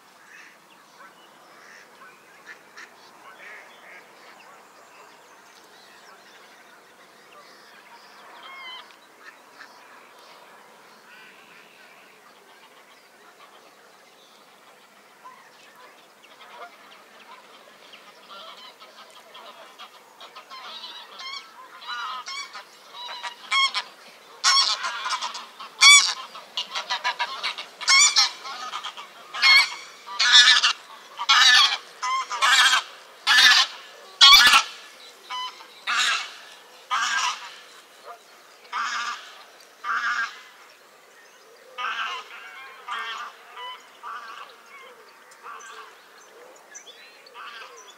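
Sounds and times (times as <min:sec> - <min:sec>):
geese honking: 0:08.2 - 0:09.8, 0:14.7 - 0:40.6, 0:41.8 - 0:46.0.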